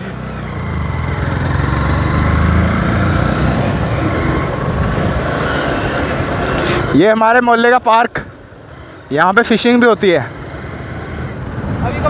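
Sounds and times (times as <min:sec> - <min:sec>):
motorcycle engines running: 0:00.0 - 0:12.0
wind rushing over microphone: 0:01.3 - 0:07.4, 0:10.8 - 0:12.0.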